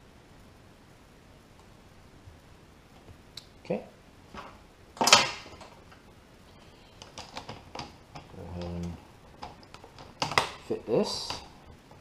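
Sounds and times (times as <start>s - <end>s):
plastic clatter: 7.0s - 12.0s.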